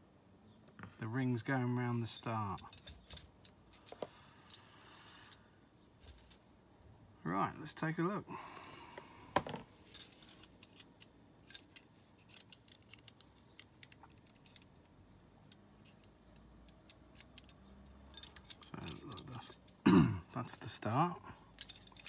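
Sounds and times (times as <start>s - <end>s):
metal puzzle pieces clinking: 10.0s - 14.7s, 15.5s - 19.8s, 21.6s - 22.0s.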